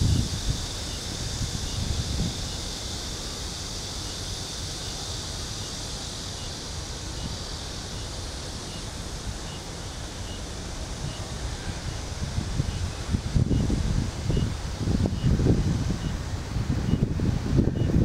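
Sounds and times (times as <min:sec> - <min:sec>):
wind buffeting microphone: 0:00.0 - 0:02.7, 0:10.5 - 0:18.0
steady hiss: 0:00.0 - 0:18.0.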